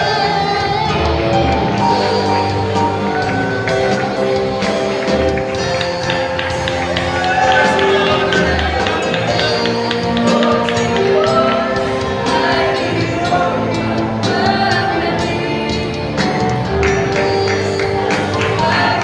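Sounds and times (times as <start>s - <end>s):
band accompaniment: 0.0s - 19.0s
choir singing gospel song: 0.0s - 19.0s
steady drum beat: 0.1s - 19.0s.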